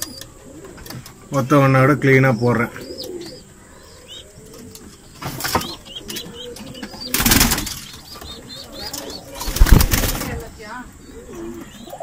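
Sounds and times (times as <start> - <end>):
pigeons chirping: 0.0 - 12.0
wings flapping: 5.2 - 10.7.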